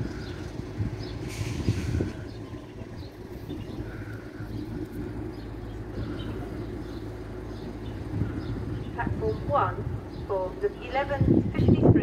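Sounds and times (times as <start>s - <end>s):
steady low hum: 0.0s - 11.8s
brief hiss: 1.2s - 2.1s.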